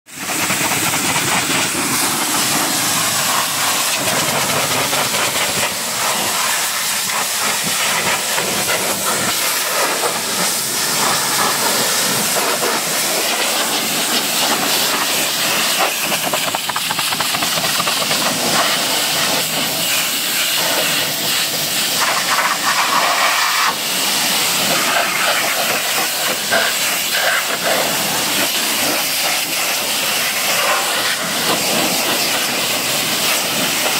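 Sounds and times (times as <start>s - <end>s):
pressure washer spraying: 0.1s - 33.9s.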